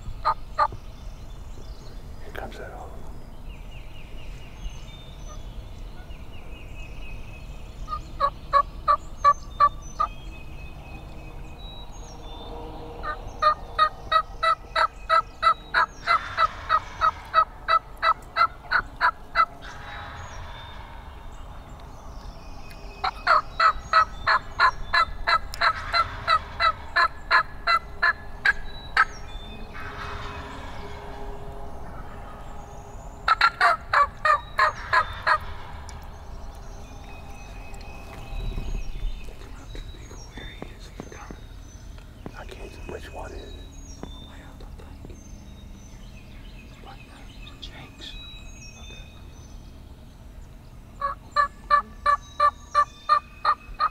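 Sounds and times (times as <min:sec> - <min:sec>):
small birds chirping: 0:00.0 - 0:53.9
turkeys yelping: 0:00.2 - 0:00.7, 0:07.9 - 0:09.0, 0:13.0 - 0:20.9, 0:23.0 - 0:32.6, 0:33.2 - 0:38.7, 0:51.0 - 0:53.9.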